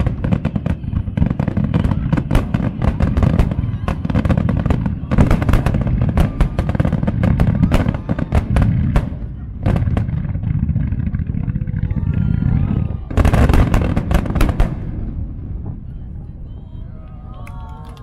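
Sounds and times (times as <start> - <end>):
fireworks bursting with sharp bangs: 0.0 - 16.4.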